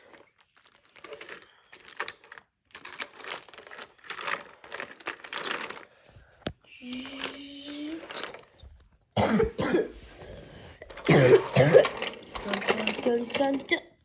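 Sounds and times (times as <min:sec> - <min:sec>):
toy train wheels clattering: 0:00.8 - 0:05.9, 0:10.8 - 0:13.9.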